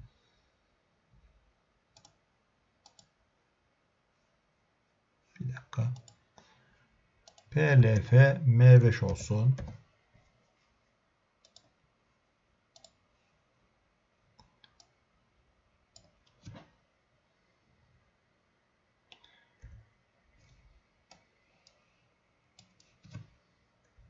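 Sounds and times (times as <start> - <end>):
computer mouse clicks: 1.9 - 2.2, 2.8 - 3.2, 5.9 - 6.2, 7.2 - 8.0, 11.4 - 11.8, 12.7 - 13.0, 14.3 - 15.0, 15.9 - 16.8, 19.1 - 19.8, 20.4 - 21.8, 22.5 - 24.0.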